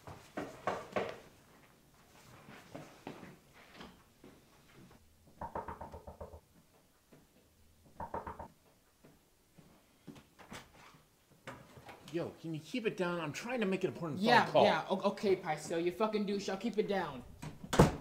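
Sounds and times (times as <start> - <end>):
muffled knocks and thumps: 7.1 - 9.2.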